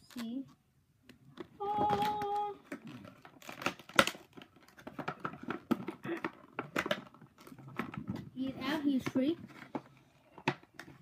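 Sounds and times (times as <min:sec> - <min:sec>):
plastic packaging crinkling and tearing: 0:01.8 - 0:08.4.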